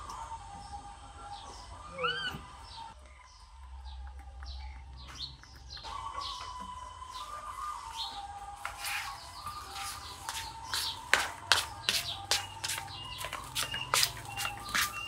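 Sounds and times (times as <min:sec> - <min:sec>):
small birds chirping: 0:00.0 - 0:15.0
bird squeal: 0:01.2 - 0:02.9, 0:05.8 - 0:11.1.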